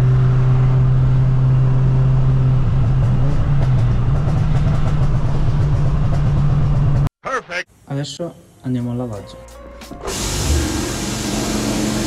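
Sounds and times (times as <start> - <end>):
tyre and road noise: 0.0 - 7.1.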